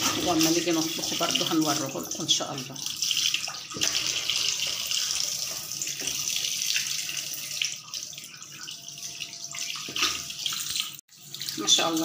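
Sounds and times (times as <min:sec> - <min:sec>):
tap water splashing over fish: 0:03.3 - 0:04.2, 0:05.5 - 0:06.4, 0:09.8 - 0:10.9.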